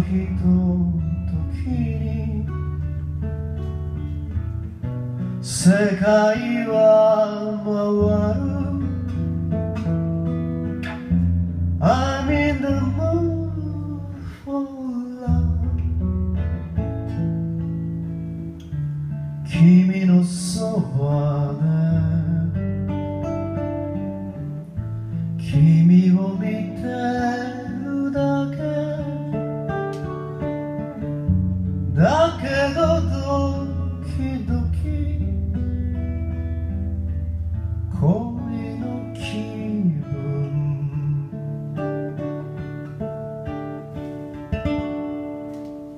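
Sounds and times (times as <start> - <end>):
man singing: 0.0 - 3.0, 5.4 - 9.4, 11.8 - 16.1, 19.4 - 23.0, 25.4 - 29.7, 31.9 - 35.6, 37.9 - 42.0
acoustic guitar: 0.0 - 45.9.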